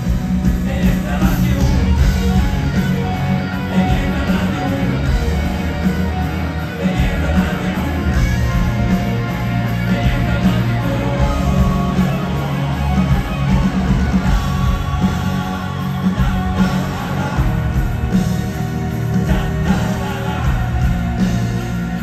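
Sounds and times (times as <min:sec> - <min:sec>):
electric guitar: 0:00.0 - 0:22.0
live rock band: 0:00.0 - 0:22.0.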